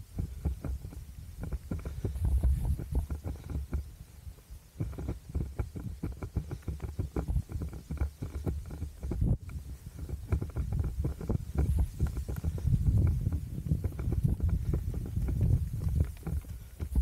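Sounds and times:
wind rumble on microphone: 0:00.0 - 0:17.0
running footsteps: 0:04.8 - 0:17.0.

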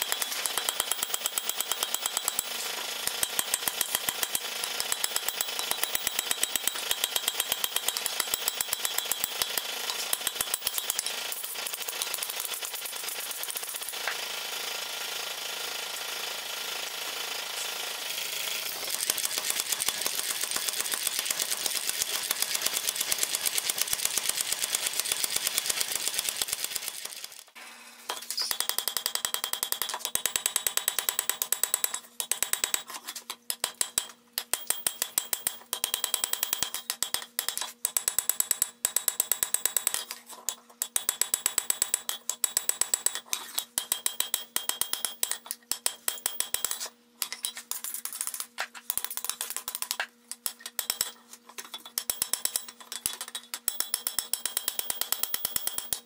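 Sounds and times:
hammer striking hot iron on anvil: 0:33.5 - 0:40.0, 0:48.9 - 0:51.2, 0:51.8 - 0:56.0.

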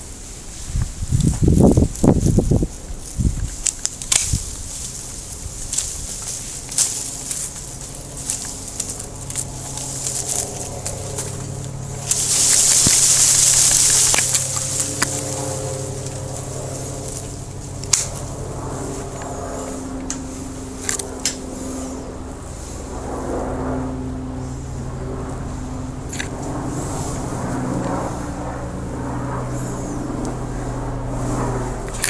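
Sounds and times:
rustling leaves and twigs: 0:00.0 - 0:23.0, 0:24.0 - 0:32.0
steady low hum: 0:00.0 - 0:32.0
pruning shears snipping: 0:03.4 - 0:21.7, 0:26.1 - 0:26.5, 0:31.8 - 0:32.0.

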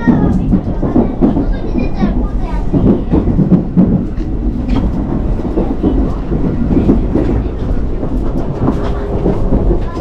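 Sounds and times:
knocks and rattles: 0:00.0 - 0:10.0
train rumbling: 0:00.0 - 0:10.0.

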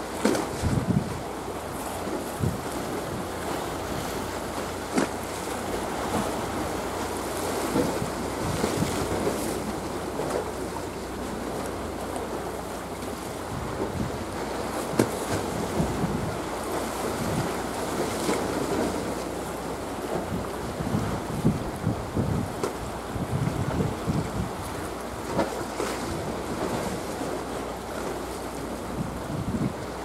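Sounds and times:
wind buffeting microphone: 0:00.0 - 0:01.4, 0:02.2 - 0:04.2, 0:07.7 - 0:09.6, 0:13.4 - 0:17.7, 0:20.2 - 0:27.0, 0:28.8 - 0:30.0
sea waves: 0:00.0 - 0:30.0.

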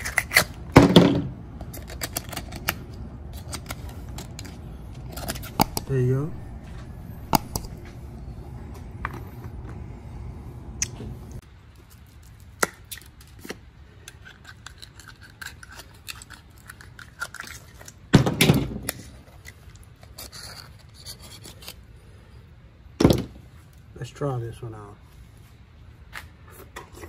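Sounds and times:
knife scraping oyster shells: 0:00.0 - 0:00.6, 0:01.7 - 0:06.6, 0:14.0 - 0:18.0, 0:19.4 - 0:21.8.

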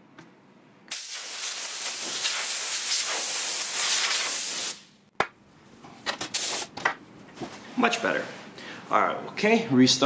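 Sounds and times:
compressed air spraying hiss: 0:00.9 - 0:04.9, 0:06.4 - 0:06.7.

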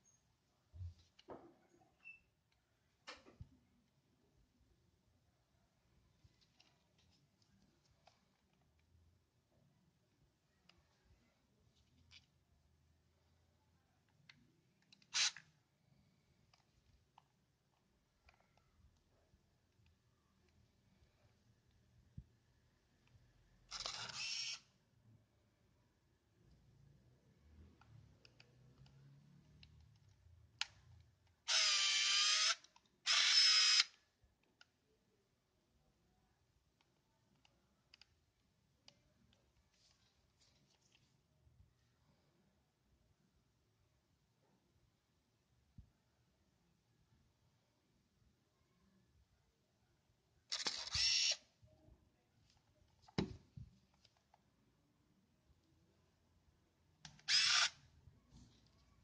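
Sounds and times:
camera motor whirring: 0:23.7 - 0:24.6, 0:31.5 - 0:33.9, 0:50.5 - 0:51.4, 0:57.2 - 0:57.8
camera shutter click: 0:31.5 - 0:33.9, 0:50.5 - 0:51.4, 0:57.2 - 0:57.8.

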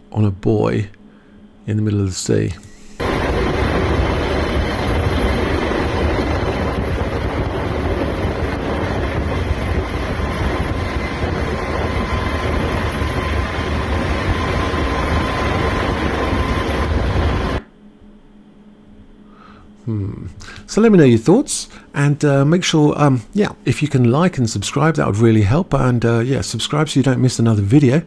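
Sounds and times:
faint steady whine: 0:00.0 - 0:28.0
helicopter rotor and engine: 0:02.6 - 0:17.7.

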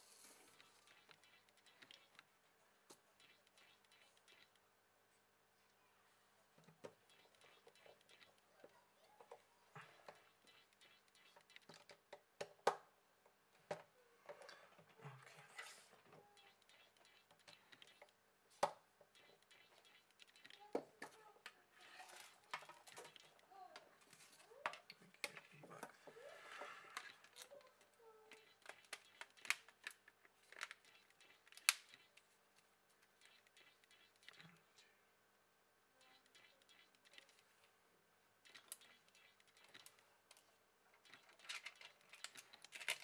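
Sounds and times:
plastic parts being handled: 0:41.0 - 0:43.0.

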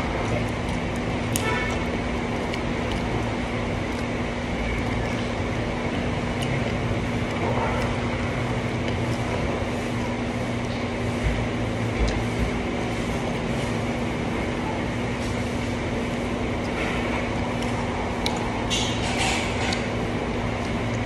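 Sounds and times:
mouth clicks and smacks: 0:00.0 - 0:14.3, 0:16.1 - 0:21.0
background hum: 0:00.0 - 0:21.0
chewing and wet mouth sounds: 0:00.0 - 0:21.0.

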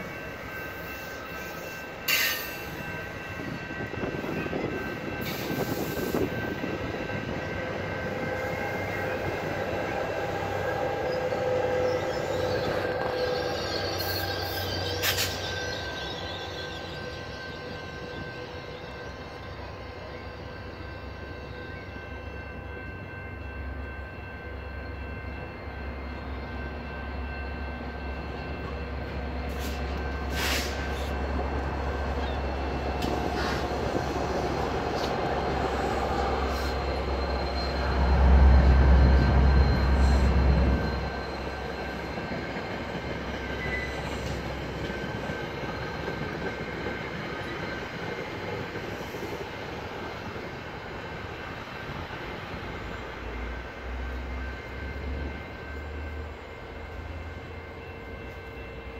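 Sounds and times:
train coaches rumbling: 0:00.0 - 0:58.9
diesel locomotive rumble: 0:23.9 - 0:47.2.

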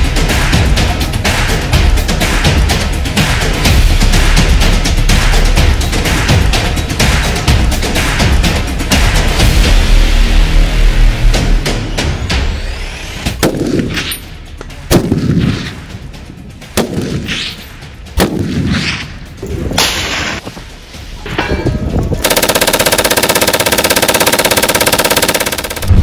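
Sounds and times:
machine gun automatic fire: 0:22.2 - 0:26.0.

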